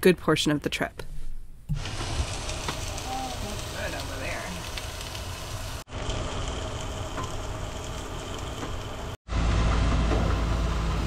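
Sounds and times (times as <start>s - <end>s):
food sizzling in a frying pan: 1.7s - 9.2s.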